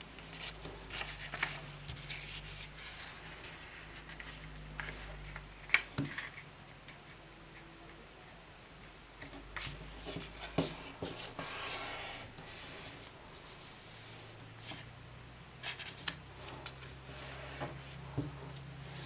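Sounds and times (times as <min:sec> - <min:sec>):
paper rustling and crinkling: 0:00.1 - 0:06.4.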